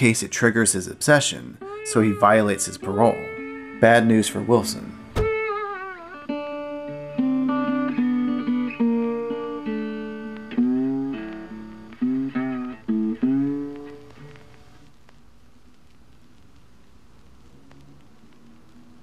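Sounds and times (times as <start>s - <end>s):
plucked guitar notes: 1.6s - 14.6s.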